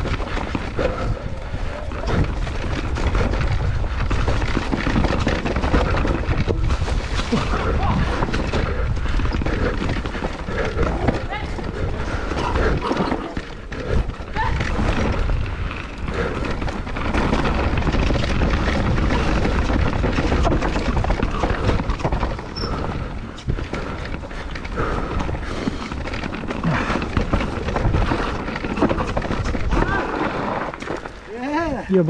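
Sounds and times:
wind on microphone: 0.0 - 23.9
bike clattering over bumps: 0.0 - 31.3.

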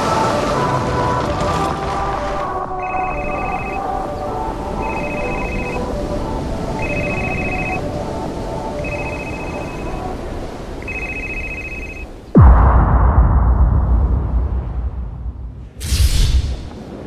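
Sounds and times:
steady rushing noise: 0.0 - 17.0
electronic telephone ringing: 2.8 - 3.9, 4.8 - 5.9, 6.8 - 7.8, 8.8 - 10.0, 10.8 - 12.1.

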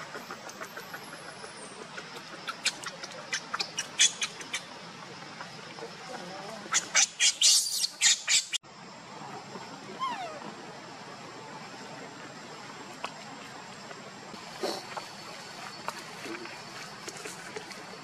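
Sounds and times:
baby monkey squeaking and shrieking: 6.7 - 8.6.

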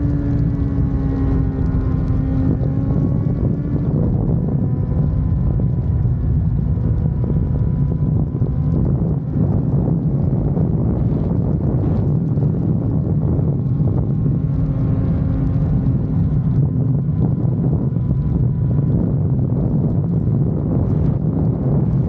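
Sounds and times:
motorcycle engine running: 0.0 - 22.0
wind rushing over microphone: 0.0 - 22.0.

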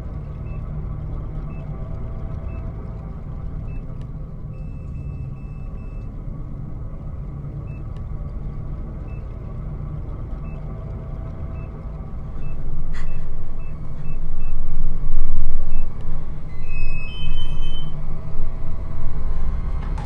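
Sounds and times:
deep rumbling drone: 0.0 - 20.0
faint electronic beeps: 12.4 - 18.8.

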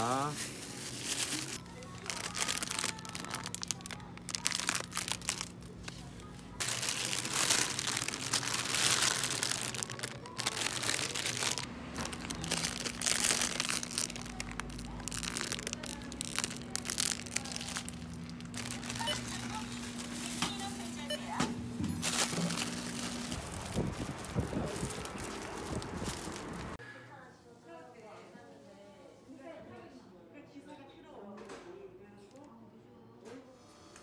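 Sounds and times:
plastic bags crinkling: 0.0 - 26.8.

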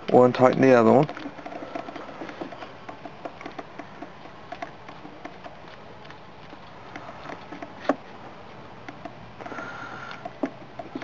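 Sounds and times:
metallic clicks and ticks: 0.0 - 7.8.

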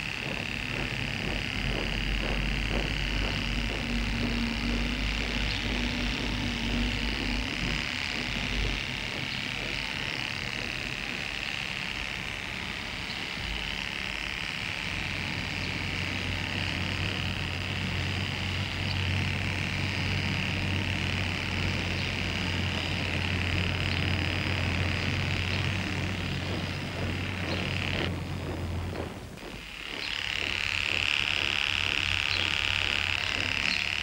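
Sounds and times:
electric hair clippers buzzing: 0.0 - 34.0.

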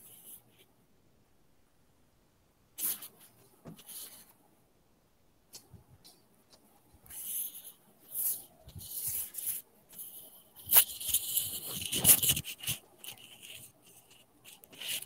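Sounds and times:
scratchy rustling and rubbing: 0.0 - 0.7, 2.8 - 4.4, 5.5 - 15.0.

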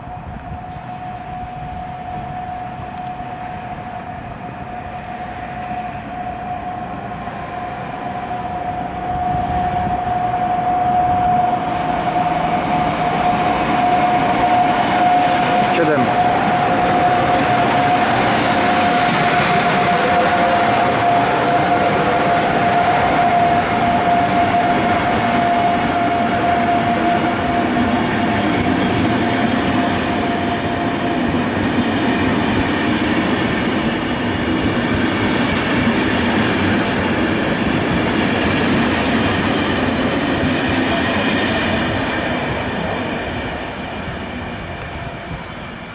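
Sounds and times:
train wheels rumbling on rails: 0.0 - 45.9
high wheel squeal: 0.6 - 37.0.

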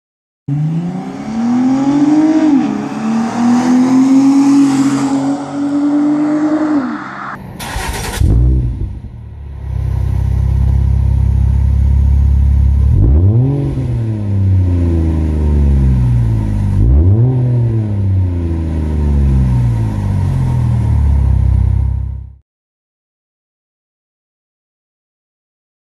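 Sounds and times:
car exhaust idling and revving: 7.4 - 22.4.

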